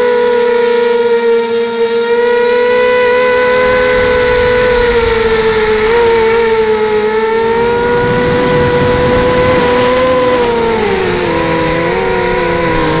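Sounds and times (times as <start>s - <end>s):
quadcopter motors whining: 0.0s - 13.0s
rush of air: 3.0s - 13.0s.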